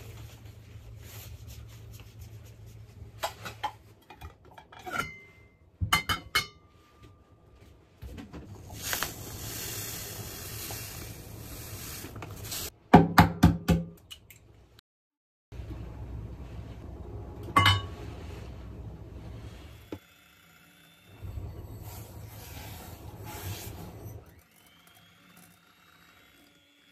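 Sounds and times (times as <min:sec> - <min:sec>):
glass and dish clinks: 0:17.6 - 0:17.9.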